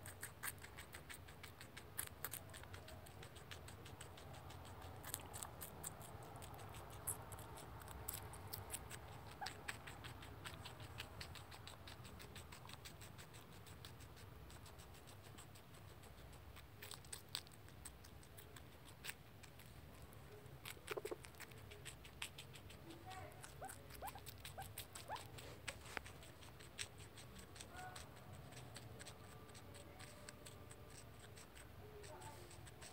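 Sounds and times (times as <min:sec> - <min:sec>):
guinea pig chewing: 0:00.0 - 0:32.9.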